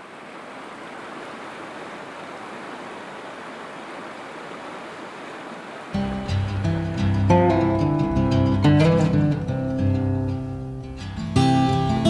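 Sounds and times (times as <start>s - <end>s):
river rushing over stones: 0.0s - 9.6s.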